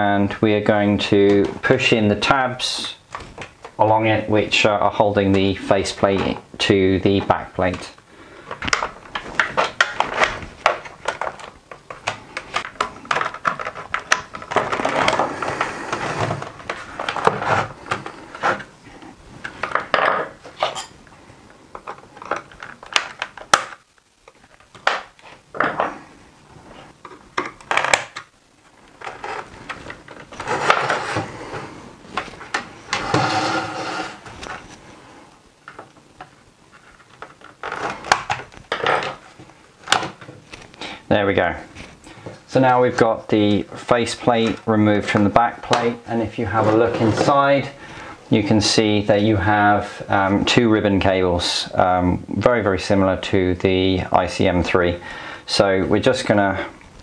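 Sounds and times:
plastic clicks and scraping: 8.5s - 18.7s, 21.7s - 25.9s.

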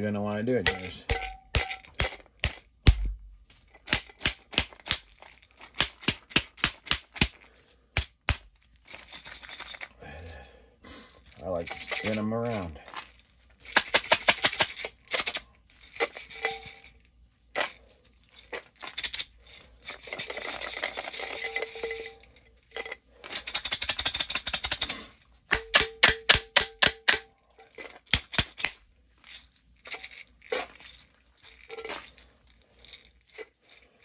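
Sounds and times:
grain rattling inside glass jar: 0.0s - 2.7s, 8.6s - 10.0s, 11.2s - 25.1s, 27.6s - 34.0s.

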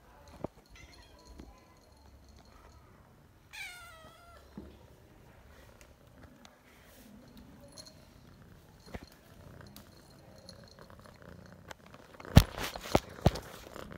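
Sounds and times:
cat purring: 5.3s - 13.9s.

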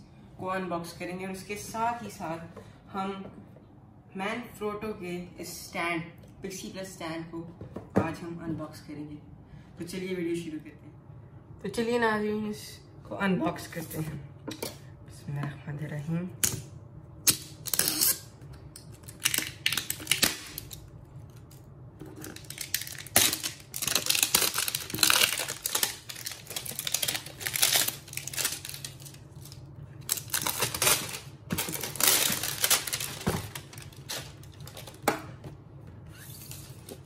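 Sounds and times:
plastic film crinkling: 18.9s - 35.1s.

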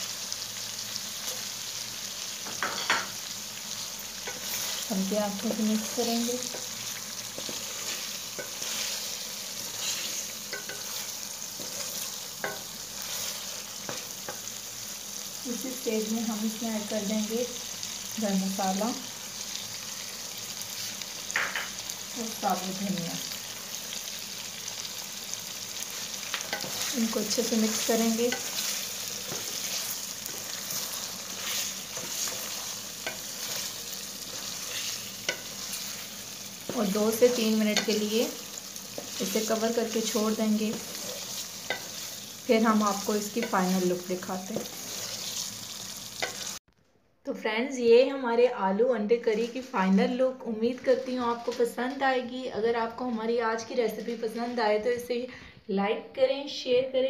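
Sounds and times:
curry sizzling in a metal pan: 0.0s - 46.7s, 49.3s - 54.5s
spoon knocking against pan: 21.3s - 21.8s
wooden spoon stirring: 25.9s - 38.0s, 38.9s - 42.3s.

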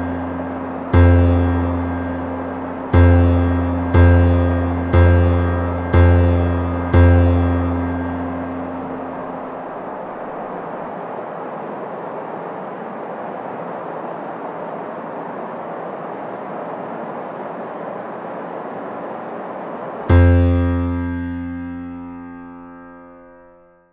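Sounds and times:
keyboard chord: 0.0s - 9.6s, 20.1s - 23.9s
steady rushing noise: 0.0s - 23.6s.

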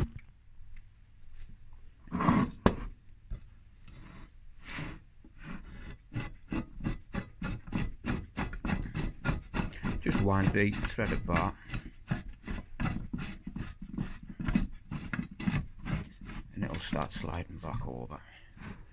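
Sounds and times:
nut rubbing on threaded bar: 3.9s - 18.9s.

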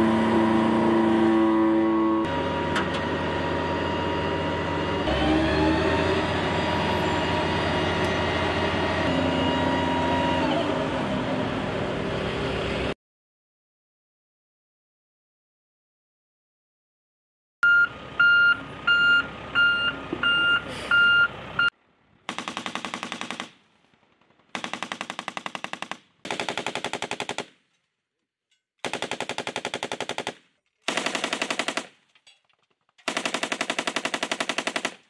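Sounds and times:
reversing alarm beeping: 2.2s - 10.7s, 17.6s - 21.7s
machine gun bursts: 22.3s - 23.5s, 24.5s - 27.5s, 28.8s - 32.0s, 33.0s - 35.0s.

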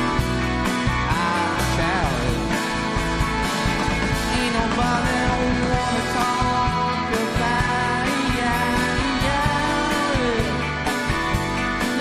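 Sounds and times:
drums: 0.0s - 12.0s
electric guitars: 0.0s - 12.0s
keyboard: 0.0s - 12.0s
person singing: 0.9s - 2.9s, 4.2s - 11.0s.

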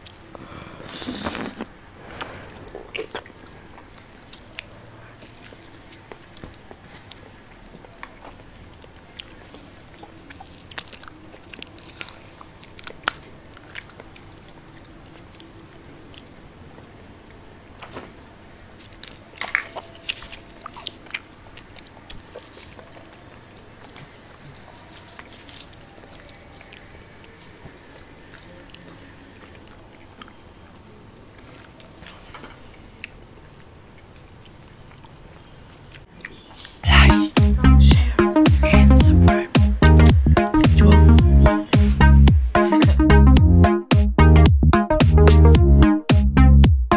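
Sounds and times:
crisp chewing crunches: 1.1s - 16.4s, 17.7s - 37.3s.

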